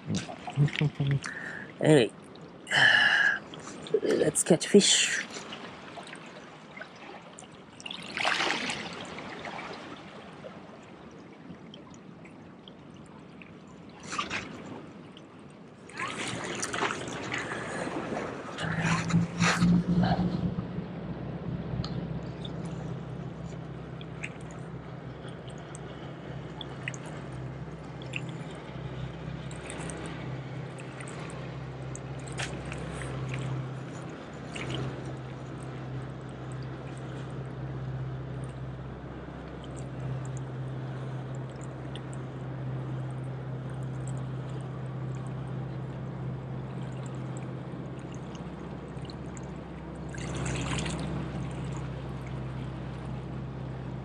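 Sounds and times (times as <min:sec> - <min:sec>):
water lapping against rocks: 0:00.0 - 0:01.8, 0:02.4 - 0:20.8, 0:21.8 - 0:38.8, 0:39.4 - 0:54.0
steady low hum: 0:00.0 - 0:06.8, 0:08.9 - 0:54.0
light ticks: 0:21.8 - 0:24.6.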